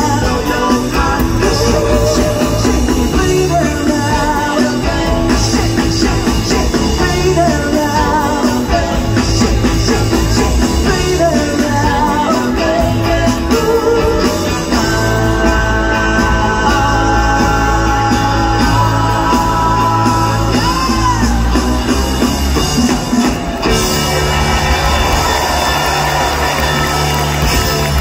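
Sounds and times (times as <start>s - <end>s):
voices singing harmony: 0.0s - 21.1s
live rock band: 0.0s - 28.0s
audience cheering: 1.4s - 3.6s, 20.5s - 28.0s.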